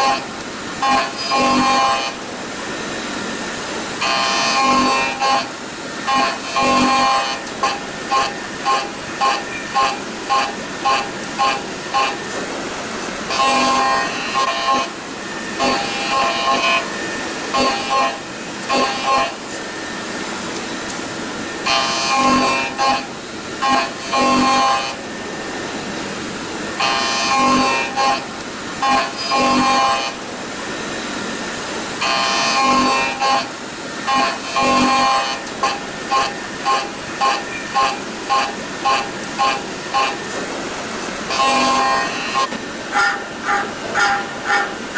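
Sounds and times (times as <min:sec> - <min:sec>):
milling cutter whining: 0:00.0 - 0:44.9
steady noisy background: 0:00.0 - 0:44.9.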